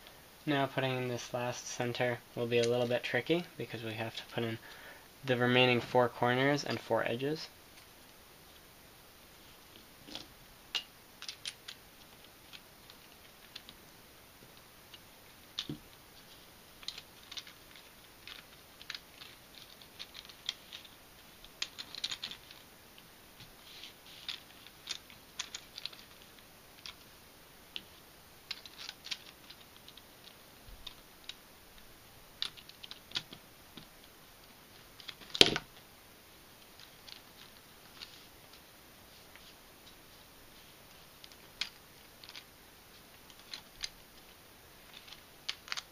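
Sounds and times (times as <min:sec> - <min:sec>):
plastic puzzle pieces clicking: 0:10.7 - 0:13.8, 0:16.8 - 0:22.6, 0:24.1 - 0:27.1, 0:28.5 - 0:31.4, 0:32.4 - 0:33.4, 0:41.2 - 0:42.5, 0:43.2 - 0:44.3, 0:44.9 - 0:45.9.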